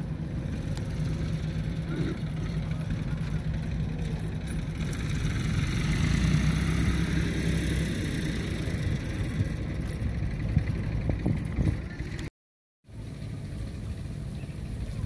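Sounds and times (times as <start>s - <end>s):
engine droning: 0.0s - 12.3s, 12.9s - 15.0s.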